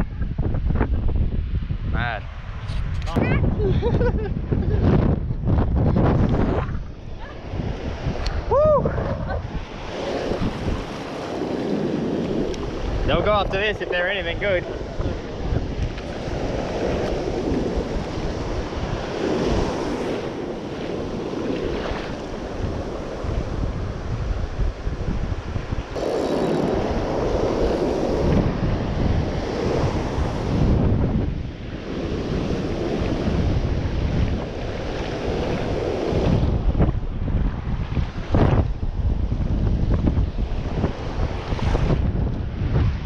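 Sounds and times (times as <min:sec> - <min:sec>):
wind buffeting microphone: 0:00.0 - 0:43.0
ocean surf breaking: 0:06.4 - 0:43.0.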